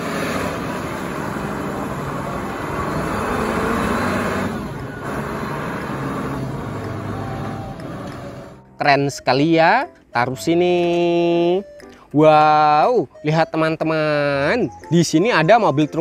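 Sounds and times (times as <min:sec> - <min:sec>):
forklift engine running: 0:00.0 - 0:08.7.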